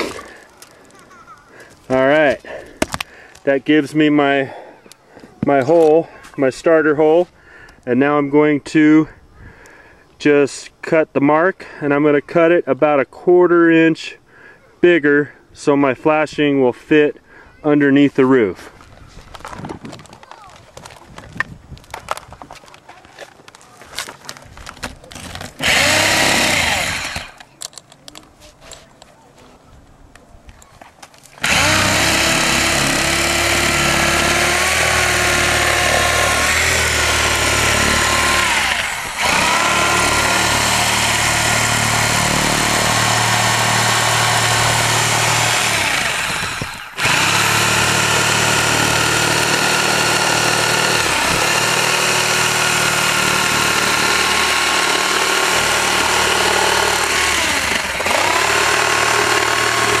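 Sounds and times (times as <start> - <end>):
reciprocating saw cutting: 25.6 - 27.4, 31.4 - 60.0.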